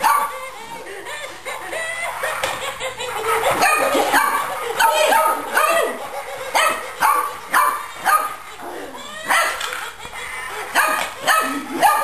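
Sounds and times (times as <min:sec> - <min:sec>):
puppy yappy barking: 0:00.0 - 0:00.5, 0:02.0 - 0:08.5, 0:09.2 - 0:09.8, 0:10.7 - 0:12.0.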